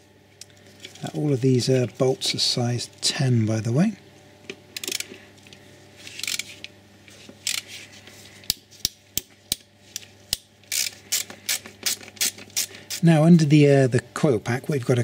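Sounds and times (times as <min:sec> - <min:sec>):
ratchet wrench clicking: 0:10.3 - 0:13.0.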